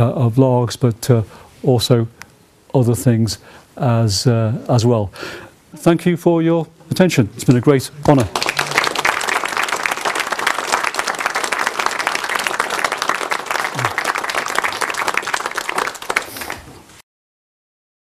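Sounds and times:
audience applauding: 8.0s - 16.9s.

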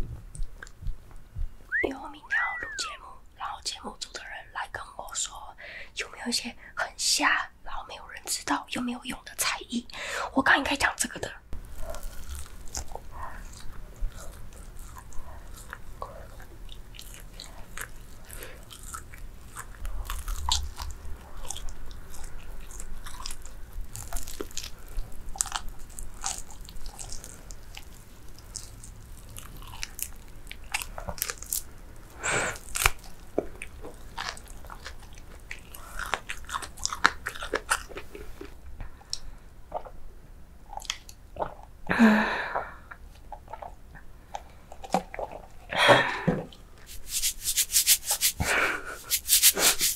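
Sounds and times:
crunchy chewing: 11.6s - 39.9s
slurp through a straw: 46.9s - 49.9s.

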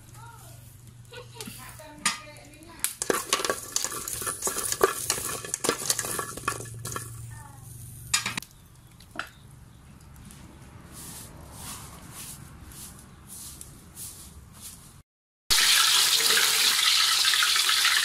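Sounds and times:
spatula scraping a metal wok: 3.0s - 7.3s.

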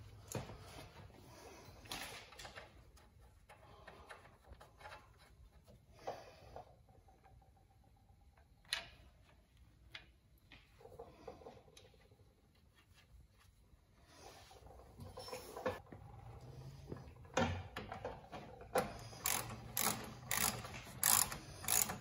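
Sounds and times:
hand tools clicking and knocking: 17.3s - 22.0s.

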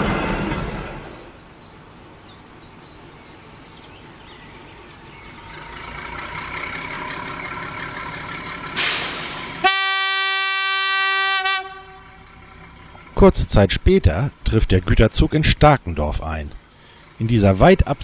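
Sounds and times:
diesel locomotive engine: 0.0s - 18.0s
air hiss: 8.8s - 9.6s
locomotive horn blast: 8.8s - 12.4s.

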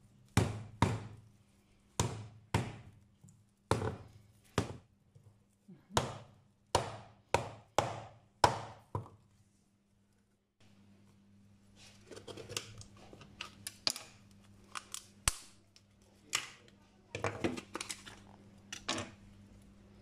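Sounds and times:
coconut shell cracking: 13.6s - 16.6s.

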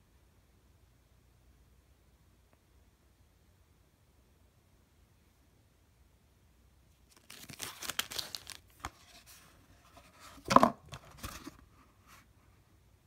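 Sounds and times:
plastic bag crinkling: 7.1s - 9.1s.

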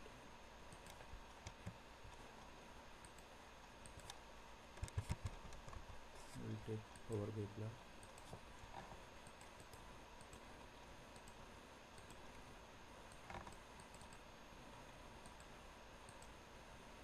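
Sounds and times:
computer mouse clicks: 0.7s - 2.2s, 3.0s - 4.2s, 4.8s - 5.8s, 8.0s - 8.4s, 9.2s - 10.5s, 11.1s - 12.4s, 13.1s - 14.2s, 15.2s - 16.4s.

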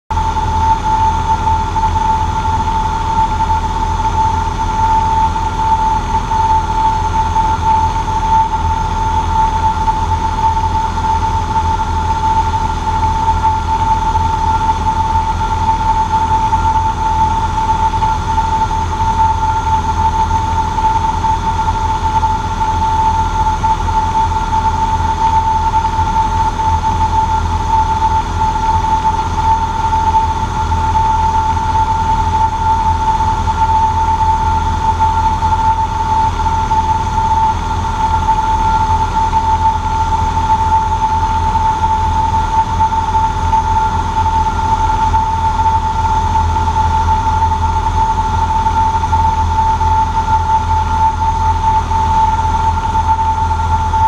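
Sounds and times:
aircraft engine and propeller: 0.1s - 54.0s.

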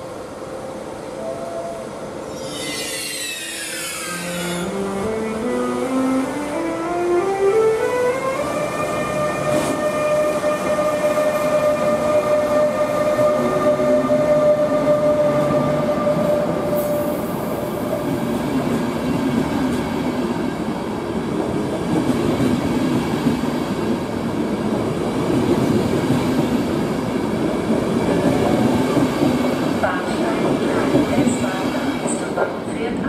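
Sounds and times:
electric locomotive whine: 0.0s - 23.3s.

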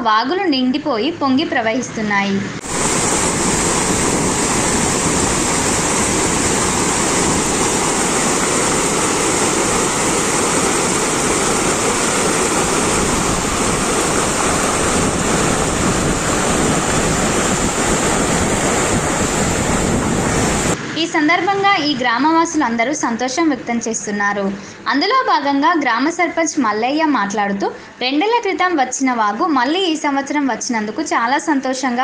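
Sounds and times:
floodwater rushing over causeway: 2.6s - 20.8s.

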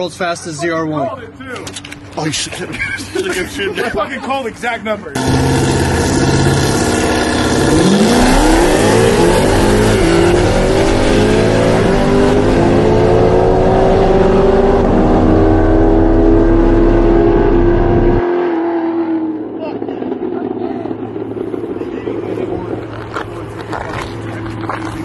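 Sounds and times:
car engine revving at full throttle: 5.2s - 25.0s.

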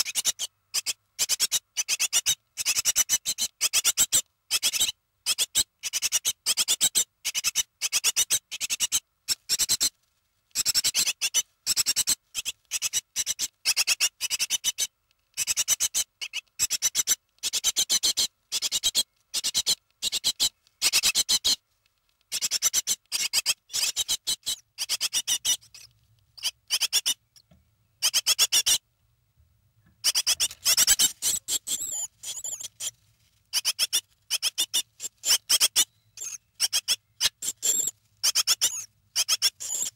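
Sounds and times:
nestling birds chirping: 30.0s - 32.9s, 33.5s - 39.9s.

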